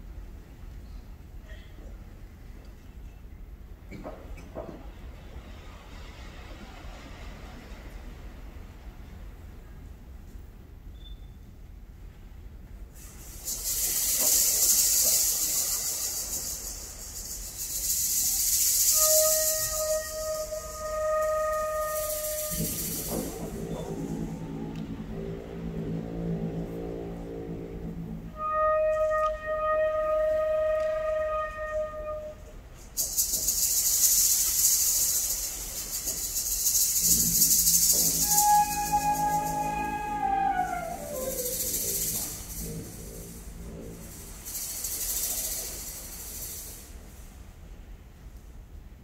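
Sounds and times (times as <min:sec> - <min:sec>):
high hissing percussion shimmer: 0:13.0 - 0:26.2, 0:32.9 - 0:47.3
held woodwind note: 0:18.9 - 0:32.7, 0:37.1 - 0:44.4
concert band playing: 0:37.7 - 0:41.7.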